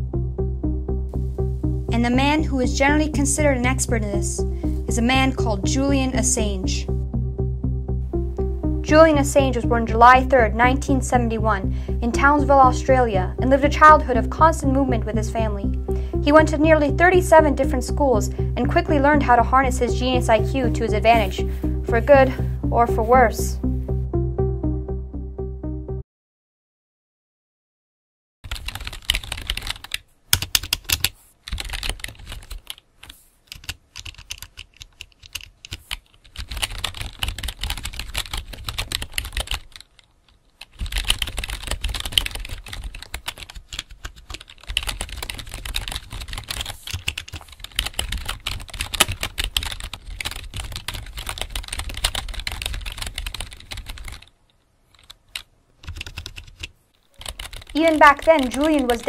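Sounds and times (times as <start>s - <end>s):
rapid keyboard typing: 28.5s - 54.3s, 54.9s - 59.0s.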